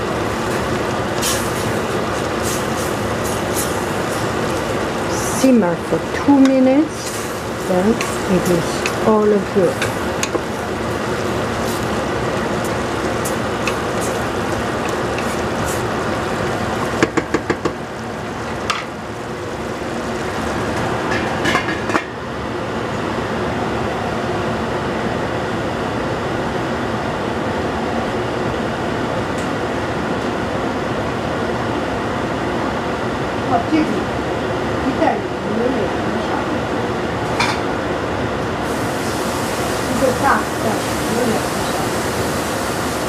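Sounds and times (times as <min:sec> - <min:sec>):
pot simmering hiss: 0:00.0 - 0:22.0, 0:38.6 - 0:43.0
spoon stirring vegetables in pot: 0:06.3 - 0:17.0.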